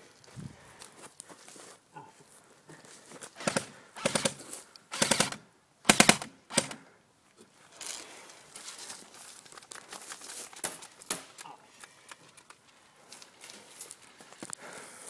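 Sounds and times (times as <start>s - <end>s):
airsoft rifle bursts: 3.4s - 6.9s.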